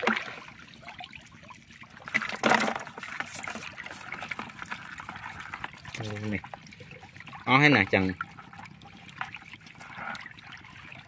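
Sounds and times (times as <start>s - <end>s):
loud splash: 0.0s - 0.5s
water dripping into bucket: 0.0s - 11.0s.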